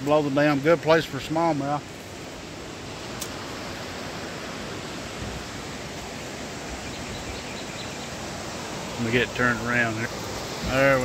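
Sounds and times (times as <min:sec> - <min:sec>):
water rushing over a dam: 0:00.0 - 0:11.0.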